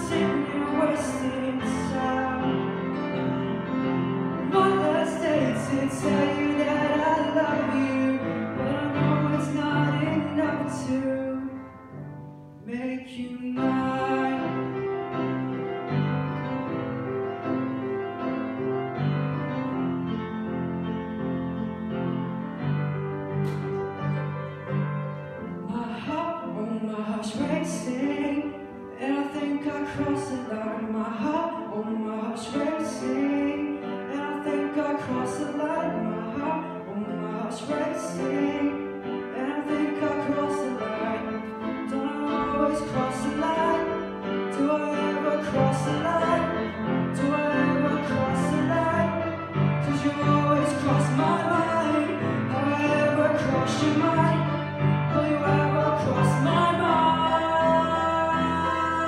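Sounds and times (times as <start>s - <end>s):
man singing into microphone: 0.0s - 3.4s, 4.4s - 11.8s, 12.6s - 14.9s, 25.6s - 59.0s
upright piano: 0.0s - 59.0s.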